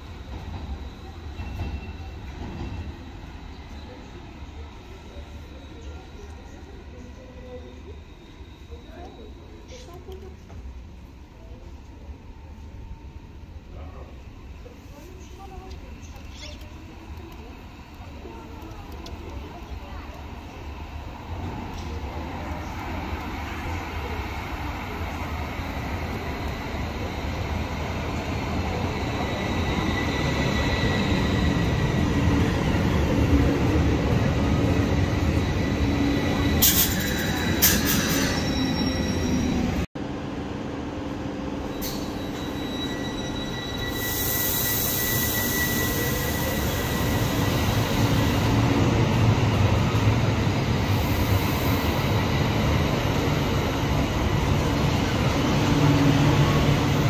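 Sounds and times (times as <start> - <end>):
tram arriving and stopping: 0.0 - 57.0
tram pulling out: 0.0 - 57.0
high wheel squeal: 28.6 - 33.0, 34.7 - 39.9, 41.7 - 48.5.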